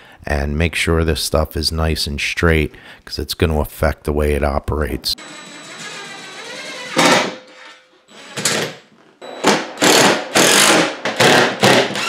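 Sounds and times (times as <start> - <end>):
impact driver hammering screws: 9.4 - 12.0.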